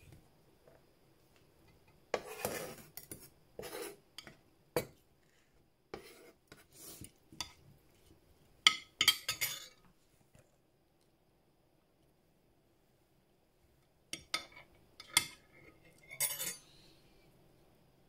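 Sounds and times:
utensils scraping and stirring salad: 2.1s - 9.9s, 14.2s - 16.6s
metal clinking on glass: 16.1s - 16.6s.

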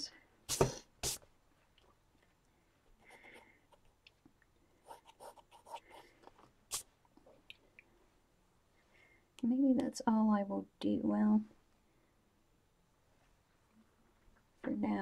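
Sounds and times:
pencil sketching on paper: 4.8s - 6.1s.

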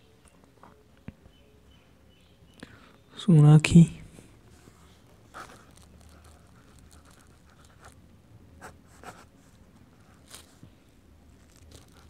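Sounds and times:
pen scratching on paper: 5.3s - 8.0s, 8.6s - 9.4s.

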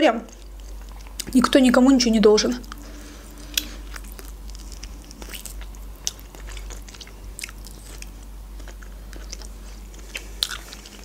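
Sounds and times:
eating with wet smacks: 2.6s - 11.0s.

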